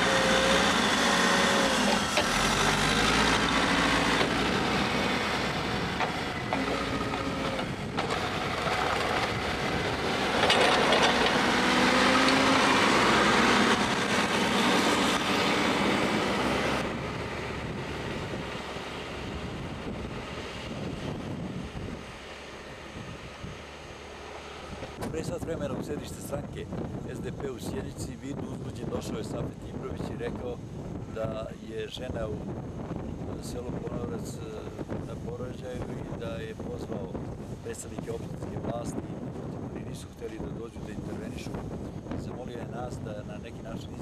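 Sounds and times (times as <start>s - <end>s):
diesel engine under load: 0.0s - 44.0s
metallic clanking: 10.2s - 15.2s.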